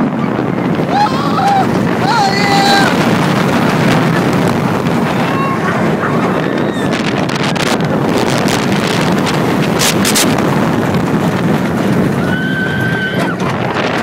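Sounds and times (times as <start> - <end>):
roller coaster on track: 0.0 - 14.0
wind rushing over microphone: 0.0 - 14.0
person screaming: 0.9 - 3.0.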